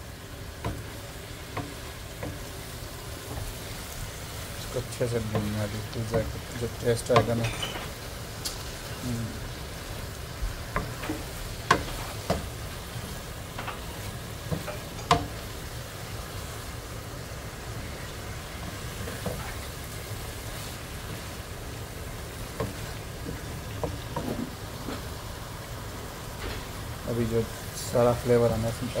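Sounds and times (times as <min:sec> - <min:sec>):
food sizzling in oil: 0:00.0 - 0:29.0
spatula scraping a pan: 0:10.8 - 0:12.9.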